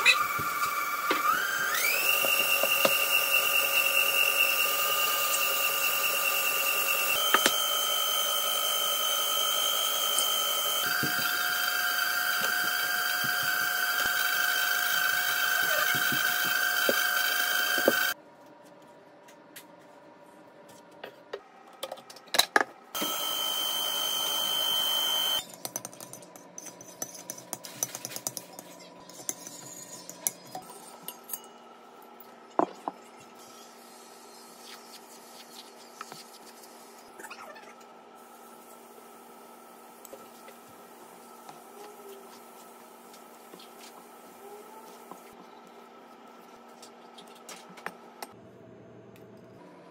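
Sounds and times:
stand mixer motor whine: 0.0s - 18.2s, 23.0s - 25.4s.

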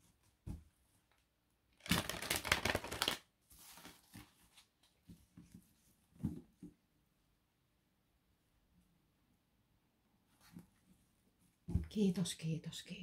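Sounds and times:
cards being shuffled: 1.9s - 4.4s.

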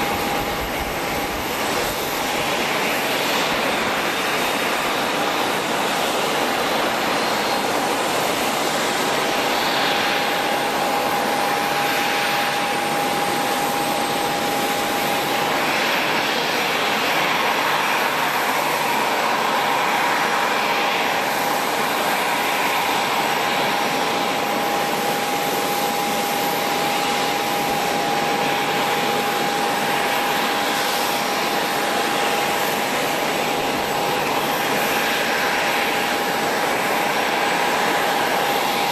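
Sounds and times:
jet engines running: 0.0s - 38.9s.

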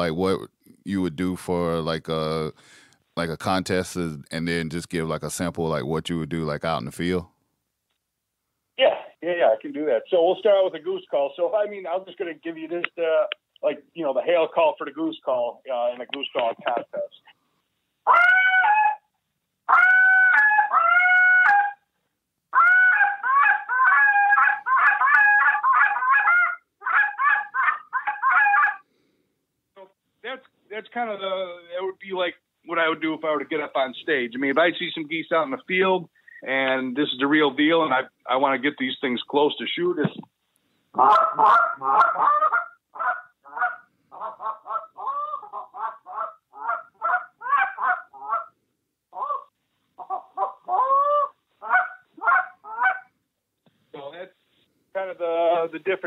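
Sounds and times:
goose call honks: 18.1s - 19.0s, 19.7s - 21.8s, 22.5s - 28.8s, 41.0s - 48.5s.

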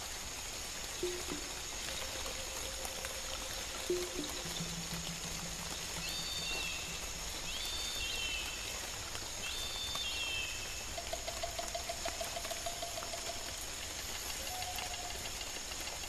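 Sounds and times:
flowing water rushing: 0.0s - 16.0s
whistled bird calls: 6.0s - 8.7s, 9.4s - 10.8s, 14.3s - 15.2s.

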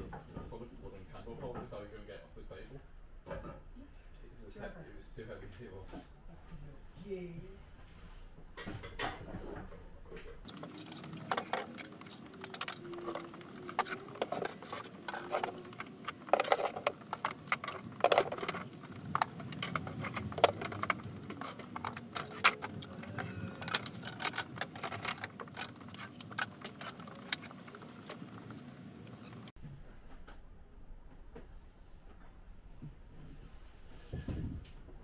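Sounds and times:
clatter of items being handled: 7.8s - 30.4s.

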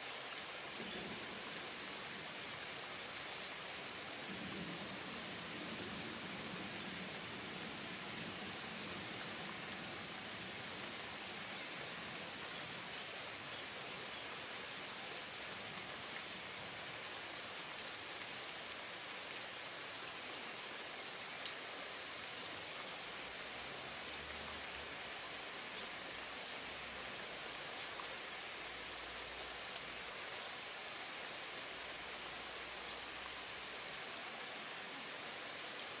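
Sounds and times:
rain falling on foliage: 0.0s - 36.0s
water drip ticks: 17.3s - 19.5s, 20.8s - 21.6s.

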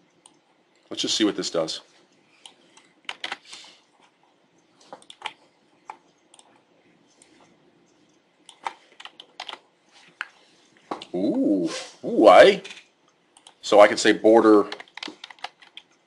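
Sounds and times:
keyboard and mouse clicking: 0.2s - 0.4s, 2.4s - 3.4s, 4.9s - 6.6s, 7.2s - 9.6s, 13.4s - 13.6s, 14.7s - 16.0s.

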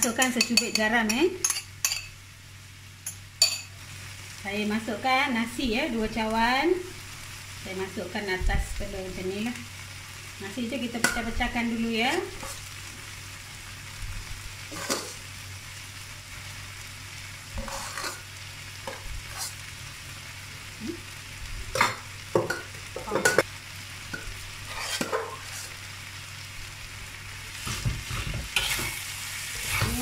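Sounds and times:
rice sizzling in a wok: 0.0s - 30.0s
spatula scraping a wok: 12.0s - 12.8s, 14.6s - 15.2s, 17.5s - 19.7s, 24.1s - 25.9s, 27.6s - 30.0s.

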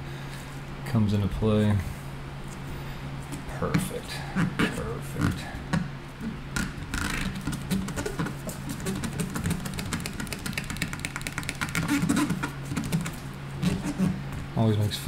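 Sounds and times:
steady low hum: 0.0s - 15.0s
wet film squeaking and squelching: 6.2s - 14.2s.

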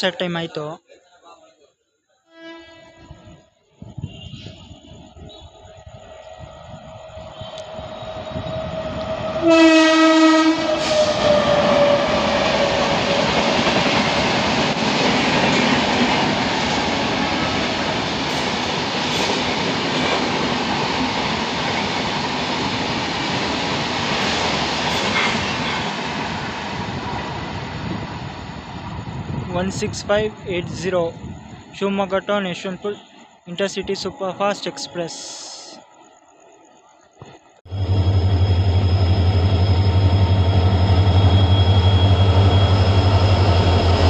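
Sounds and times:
locomotive horn: 2.3s - 4.8s, 9.4s - 12.6s
falling locomotive tone: 2.3s - 28.0s, 37.7s - 44.0s
train coaches rumbling: 3.0s - 33.0s, 37.7s - 44.0s.

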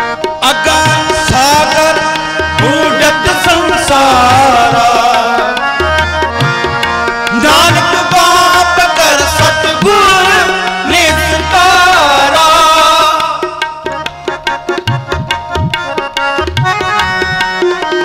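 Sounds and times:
held accompaniment chords: 0.0s - 18.0s
tabla playing: 0.0s - 18.0s
person singing: 0.4s - 5.6s.

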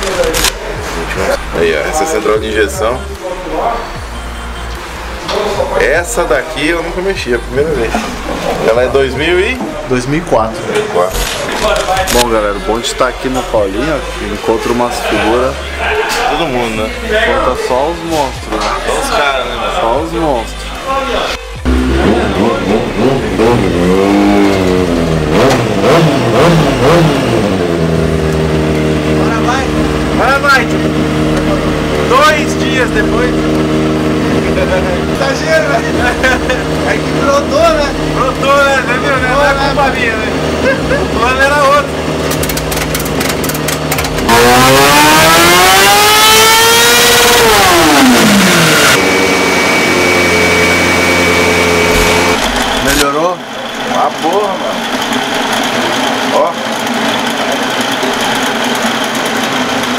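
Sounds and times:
motorcycle engine revving: 21.5s - 59.9s
steady high whine: 26.7s - 59.9s.

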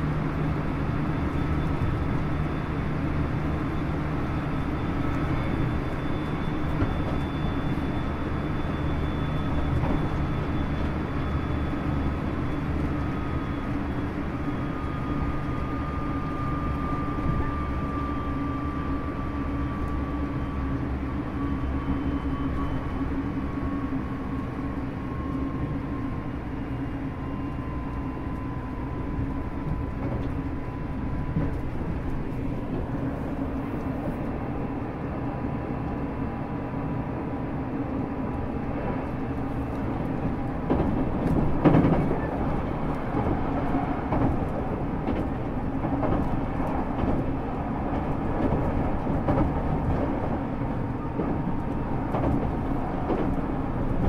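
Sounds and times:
wheels rumbling on rail: 0.0s - 54.0s.

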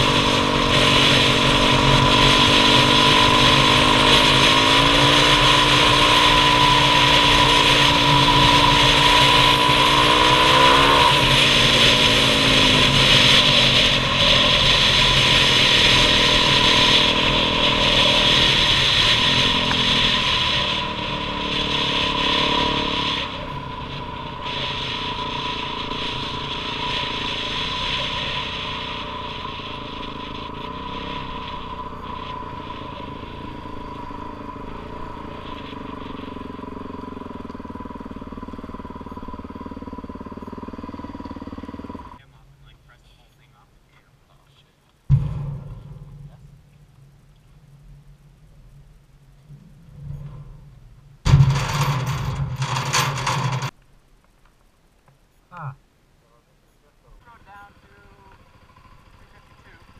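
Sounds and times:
rushing wind: 0.0s - 42.2s
dirt bike engine running: 0.0s - 42.3s, 44.4s - 53.8s, 57.1s - 59.9s
road noise: 0.0s - 59.9s.

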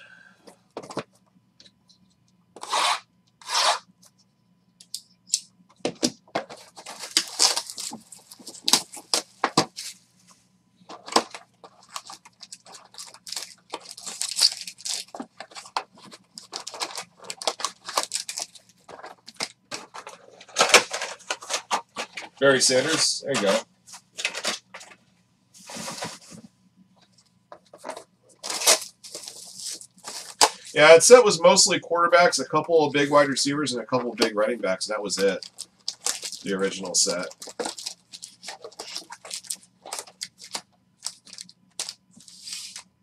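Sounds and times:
wrapper crinkling and tearing: 6.5s - 9.2s, 10.9s - 23.6s, 27.8s - 30.6s, 35.2s - 42.8s
wrappers ripping: 6.8s - 9.2s, 11.1s - 19.5s, 28.4s - 30.6s, 35.2s - 42.8s.

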